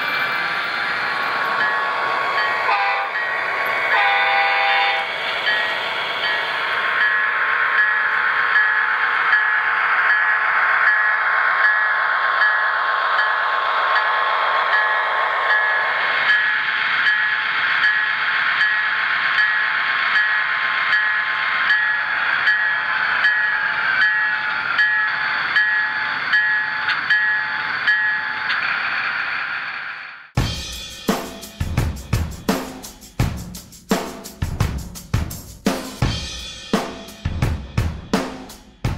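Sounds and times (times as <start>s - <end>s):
locomotive bell ringing: 1.2s - 28.4s.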